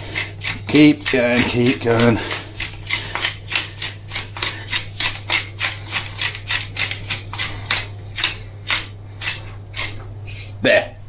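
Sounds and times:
pepper mill grinding: 0.0 - 10.5.

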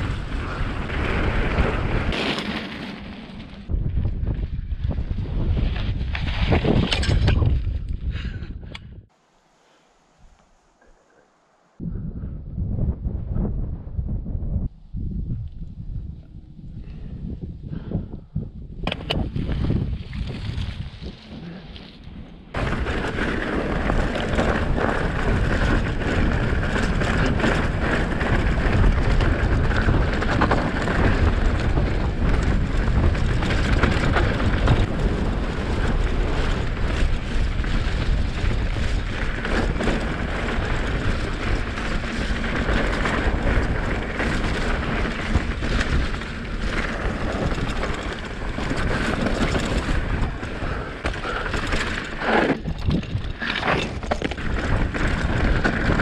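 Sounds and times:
wind rushing: 0.0 - 9.2, 11.7 - 21.8
bike tyre noise: 0.0 - 12.4, 13.4 - 56.0
bike knocks and rattles: 18.8 - 21.0, 22.6 - 56.0.

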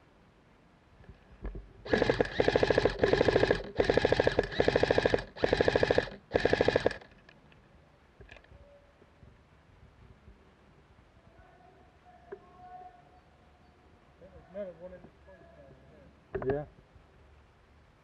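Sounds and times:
airsoft rifle firing bursts: 1.9 - 7.1.

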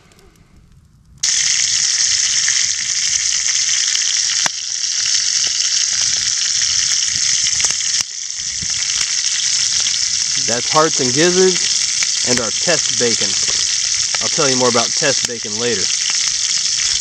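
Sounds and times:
meat sizzling in a skillet: 1.2 - 17.0.

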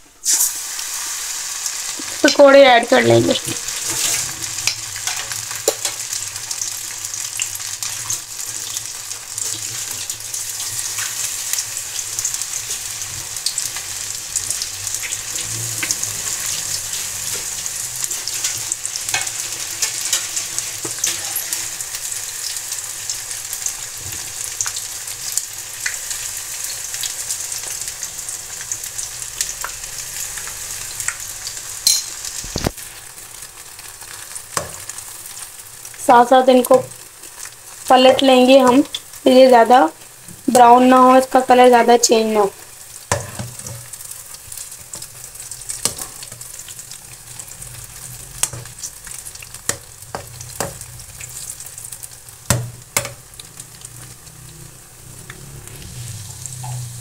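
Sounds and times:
food deep-frying in oil: 0.0 - 57.0
sharp clink: 31.9 - 32.2.

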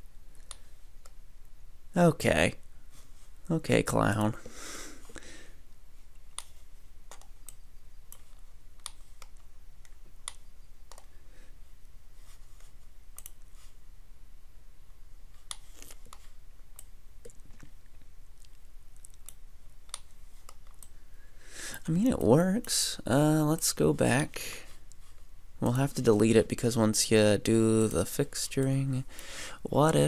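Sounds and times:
faint low hum: 0.0 - 30.0
computer mouse clicking: 6.2 - 11.1, 12.6 - 13.5, 15.4 - 17.4, 18.4 - 21.0.

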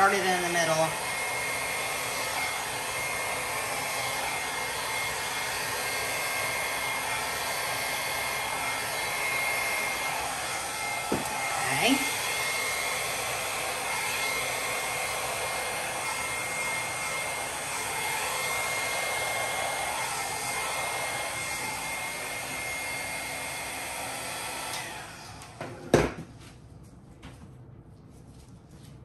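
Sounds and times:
hair dryer blowing: 0.0 - 26.3
hair dryer knocking on table: 8.2 - 16.8, 25.5 - 26.3.

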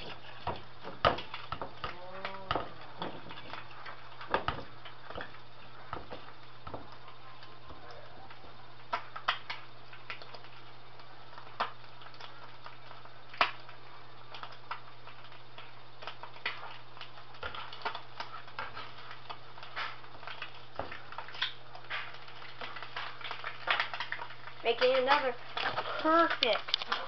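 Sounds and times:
hot oil popping and crackling: 0.0 - 27.0
steady low hum: 0.0 - 27.0.

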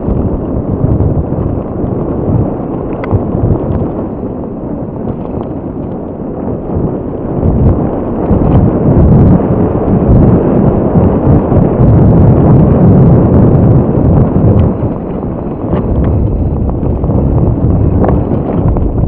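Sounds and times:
bike clicks and rattles: 0.0 - 8.8, 14.3 - 19.0
wind buffeting microphone: 0.0 - 19.0.

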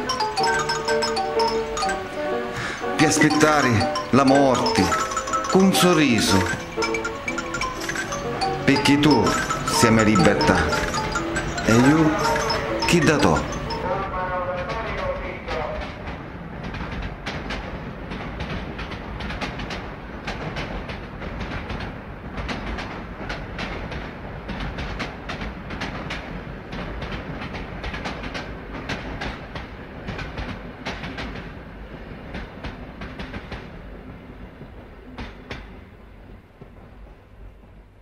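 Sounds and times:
train wheels clattering over rails: 0.0 - 13.8, 14.6 - 38.0.

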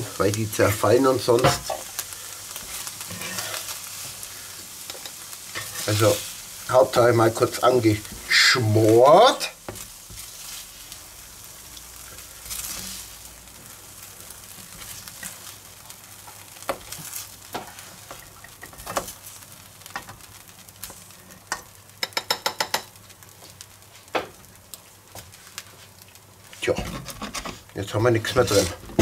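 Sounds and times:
beans sizzling in a frying pan: 0.0 - 29.0
spoon knocking: 22.0 - 22.9.

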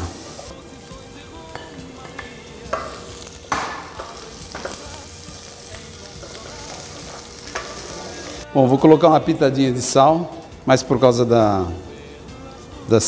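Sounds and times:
onion frying in oil: 0.0 - 1.5, 2.3 - 8.5.

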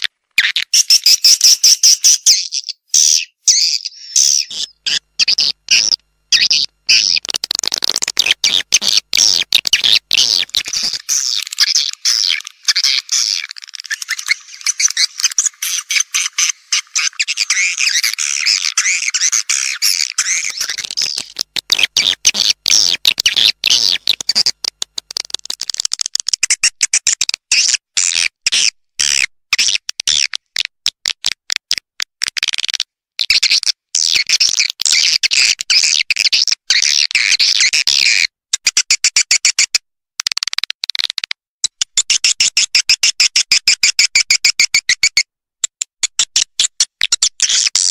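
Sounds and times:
swiftlets chirping and twittering: 0.4 - 7.3, 8.2 - 24.5.

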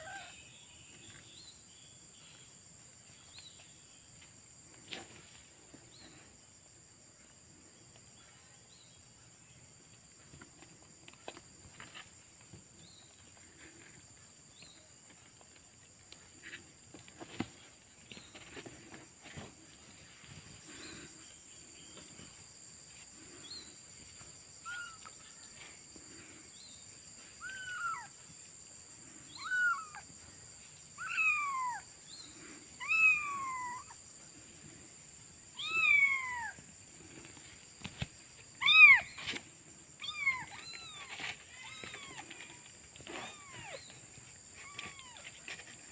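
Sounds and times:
kittens mewing: 0.0 - 0.4, 27.4 - 28.2, 29.3 - 30.0, 31.0 - 31.8, 32.8 - 34.0, 40.0 - 44.0.

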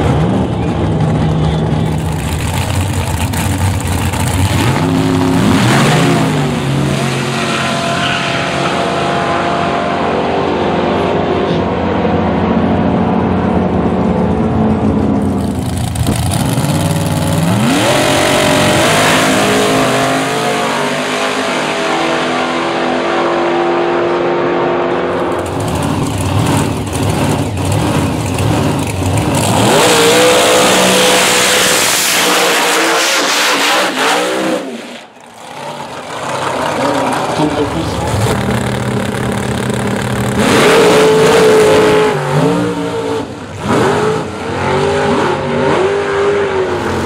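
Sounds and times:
engine crackle and popping: 0.0 - 5.4, 14.1 - 17.9, 25.1 - 30.4, 35.0 - 40.8
racing car engines accelerating: 0.0 - 47.0.

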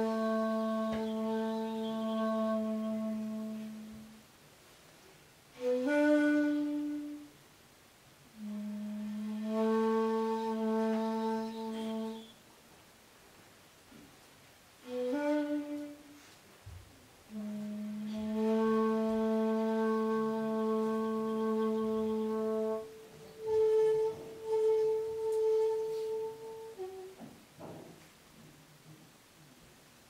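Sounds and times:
bamboo flute playing: 0.0 - 4.2, 5.5 - 7.4, 8.4 - 12.4, 14.8 - 16.4, 17.3 - 27.3.

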